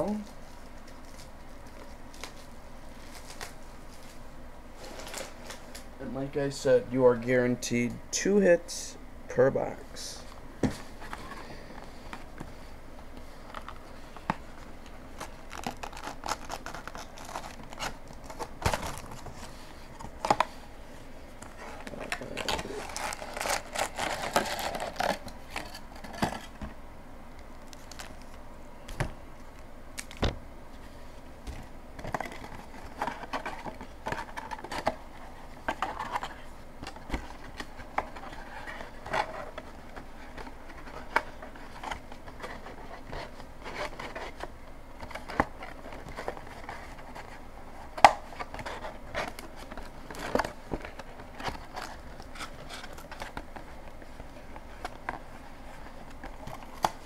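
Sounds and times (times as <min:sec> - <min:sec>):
wrappers rustling and crinkling: 0:21.5 - 0:26.1.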